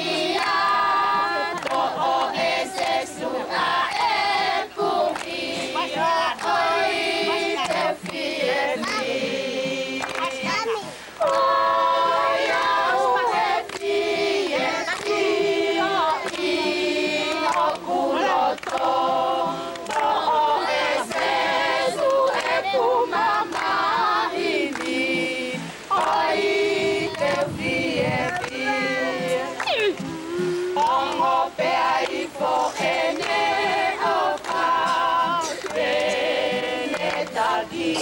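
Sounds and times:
women and children singing: 0.0 - 38.0.

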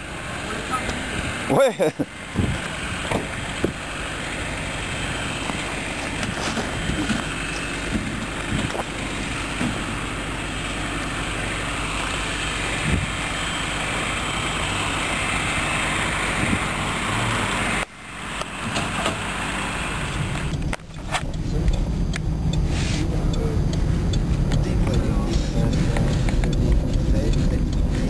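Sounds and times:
truck engine idling: 0.0 - 28.0.

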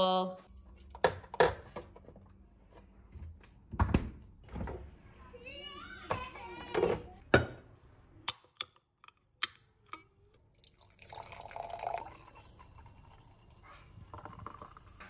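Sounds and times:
fizzing drink pour: 10.4 - 15.0.

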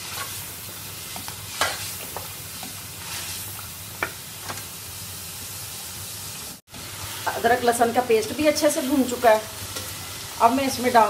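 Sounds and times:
meat sizzling in hot oil: 0.0 - 11.0
spoon scraping and knocking pan: 1.1 - 3.4.

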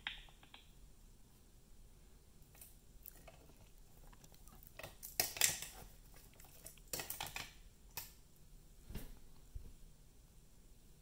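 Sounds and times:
small hard objects clattering: 2.5 - 8.1.

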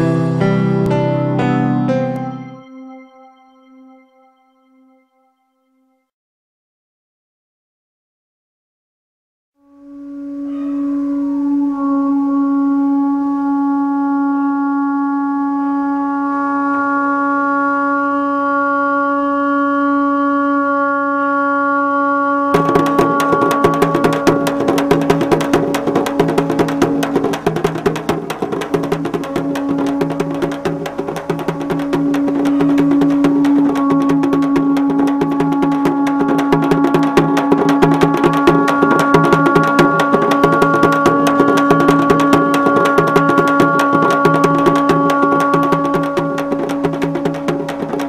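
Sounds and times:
fast dense drumming: 22.6 - 48.0.

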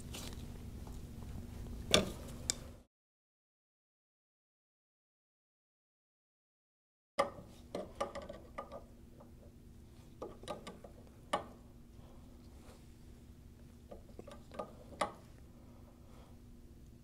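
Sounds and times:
faint steady hum: 0.0 - 2.9, 7.2 - 17.0.

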